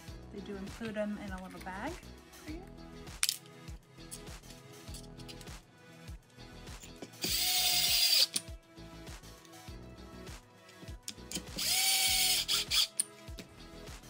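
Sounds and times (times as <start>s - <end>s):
electric screwdriver motor whine: 7.2s - 8.3s, 11.6s - 12.9s.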